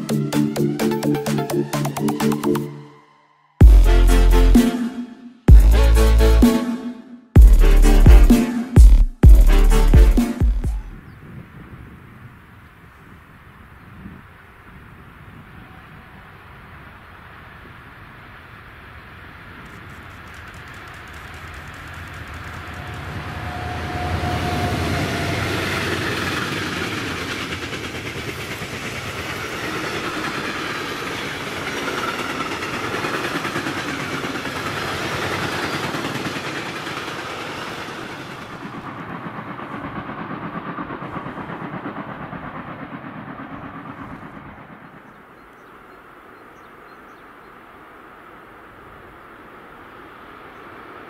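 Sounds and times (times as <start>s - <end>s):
high whine: 0.0s - 11.1s, 19.0s - 27.6s
electric locomotives passing: 0.0s - 51.0s
train wheels clattering on rails: 19.6s - 45.7s.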